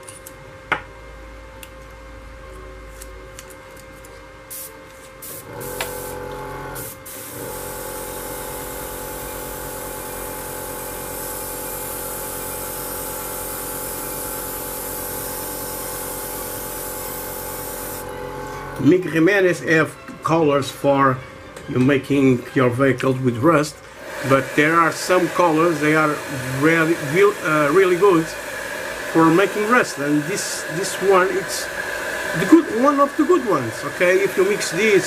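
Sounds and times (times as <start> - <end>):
compressor humming: 0.0 - 35.0
airbrush spraying hiss: 4.5 - 6.2, 6.8 - 18.1, 24.0 - 35.0.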